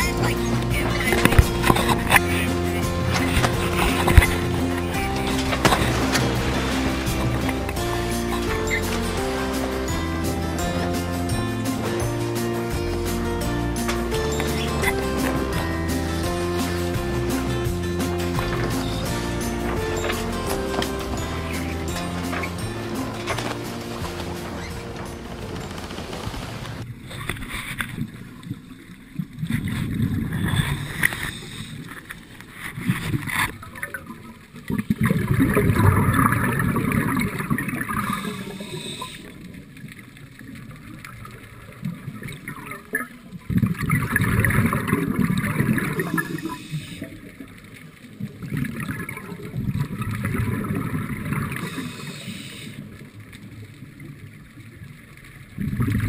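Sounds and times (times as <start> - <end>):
underwater regulator bubbling: 0.0 - 27.9.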